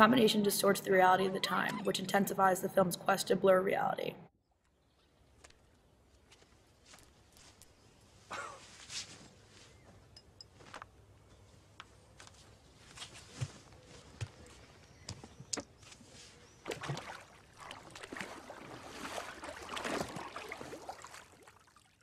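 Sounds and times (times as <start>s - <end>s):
soft rustling: 6.3s - 14.6s
water splashing: 16.6s - 22.0s.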